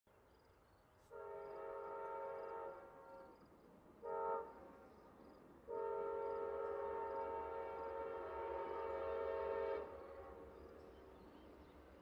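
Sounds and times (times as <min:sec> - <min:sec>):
locomotive air horn blasts: 0:01.1 - 0:03.2, 0:04.0 - 0:04.5, 0:05.7 - 0:10.4.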